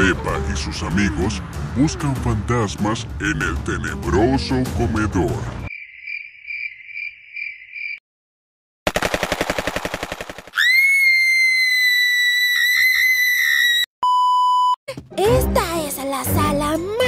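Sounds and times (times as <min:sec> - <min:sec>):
crickets chirping: 0:05.7 - 0:08.0
machine-gun fire: 0:08.9 - 0:10.6
shrill high-pitched scream: 0:10.6 - 0:13.9
short steady bleep: 0:14.0 - 0:14.8.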